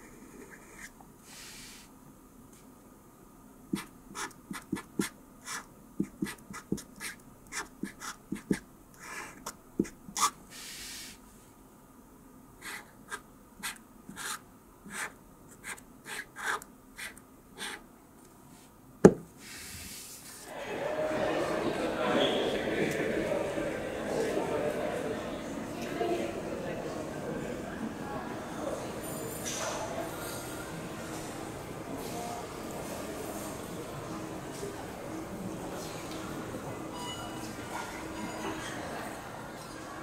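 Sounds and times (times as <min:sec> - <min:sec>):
soft breaths: 0:00.0 - 0:01.9, 0:10.2 - 0:11.6
marker scratching on paper: 0:03.7 - 0:11.1, 0:12.6 - 0:17.8.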